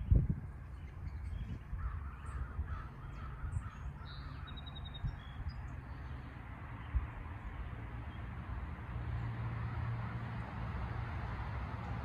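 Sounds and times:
songbirds chirping: 0:00.0 - 0:12.0
crows cawing: 0:01.8 - 0:04.6.

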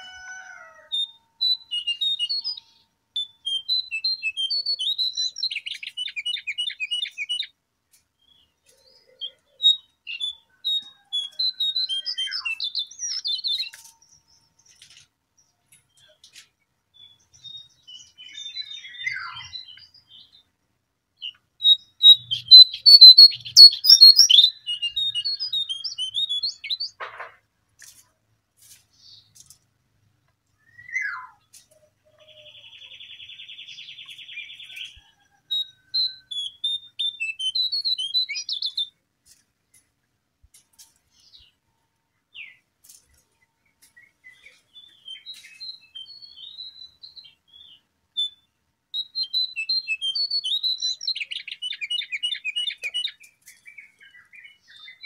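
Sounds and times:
songbird twittering: 0:01.0 - 0:07.5, 0:08.2 - 0:14.4, 0:17.0 - 0:20.4, 0:21.2 - 0:27.0, 0:30.6 - 0:38.9, 0:44.0 - 0:55.0.

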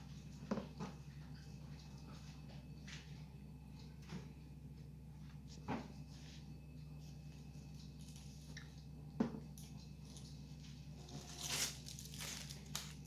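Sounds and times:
steady low hum: 0:00.0 - 0:13.0
plastic bag rustling and crinkling: 0:10.1 - 0:13.0.

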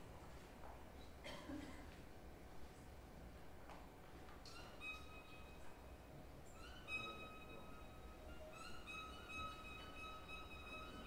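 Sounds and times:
violin bowed note: 0:04.5 - 0:11.0.

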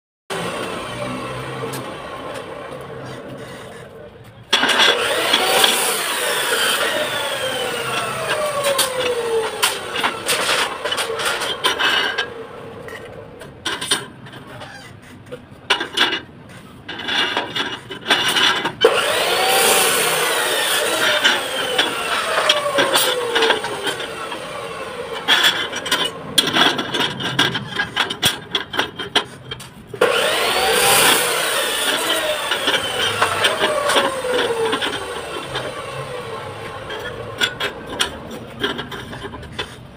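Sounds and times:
power tool motor whine: 0:00.3 - 0:03.4, 0:04.6 - 0:12.7, 0:18.8 - 0:26.2, 0:30.0 - 0:38.0.

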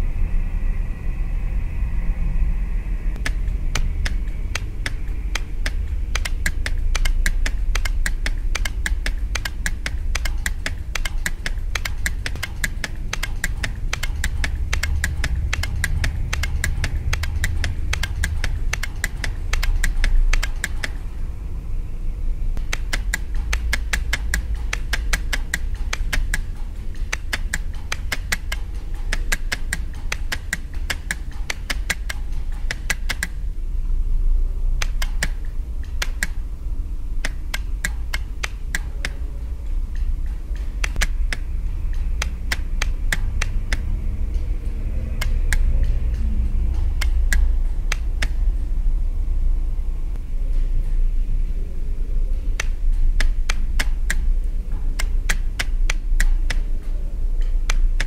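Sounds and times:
steady low hum: 0:00.0 - 0:58.0
relays clicking: 0:03.2 - 0:21.2, 0:22.6 - 0:33.4, 0:34.8 - 0:48.6, 0:52.3 - 0:58.0.

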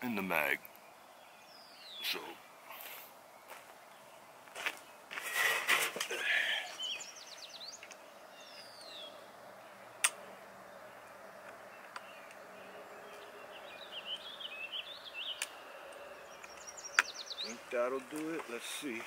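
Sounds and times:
birds chirping: 0:00.0 - 0:19.0
rustling: 0:04.5 - 0:06.3.

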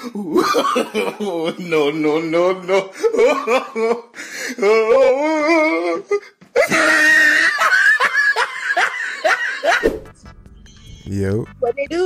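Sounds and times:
person laughing: 0:06.6 - 0:09.9.

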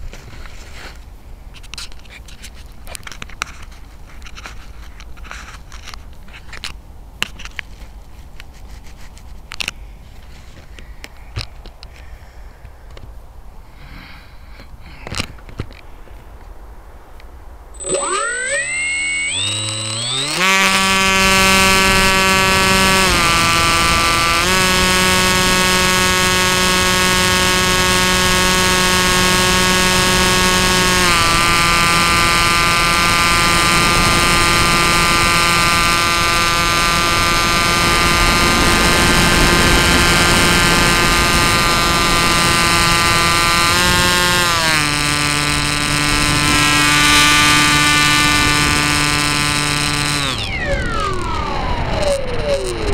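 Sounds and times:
electric motor and propeller whine: 0:17.8 - 0:52.9.

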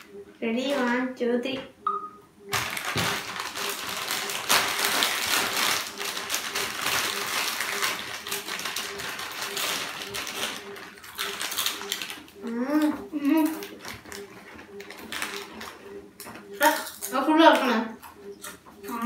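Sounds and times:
foil chip bags crinkling: 0:02.5 - 0:15.8, 0:16.6 - 0:17.7.

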